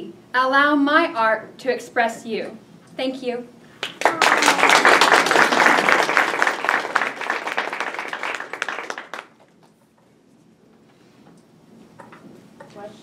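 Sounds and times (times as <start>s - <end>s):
audience applauding: 3.8s - 9.6s.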